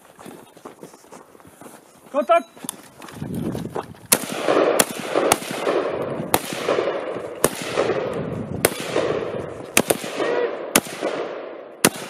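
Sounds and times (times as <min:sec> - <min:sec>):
rifle gunshots: 0:04.1 - 0:12.0.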